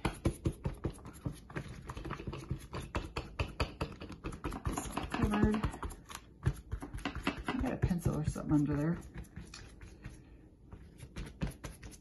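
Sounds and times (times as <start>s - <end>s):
brush scrubbing on paper: 6.6s - 12.0s.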